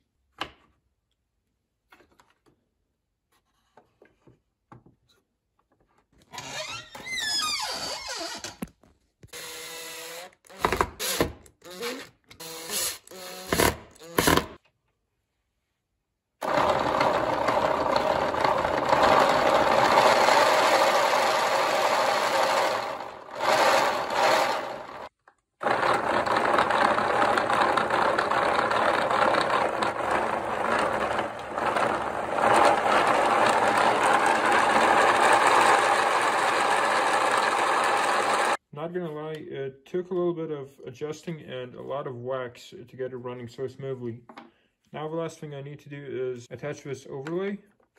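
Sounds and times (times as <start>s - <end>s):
cordless drill motor whirring: 9.3s - 14.4s, 16.4s - 38.6s.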